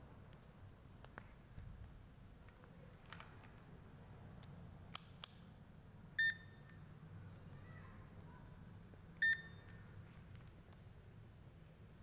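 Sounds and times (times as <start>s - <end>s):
multimeter short beeps: 6.2s - 6.7s, 9.2s - 9.8s.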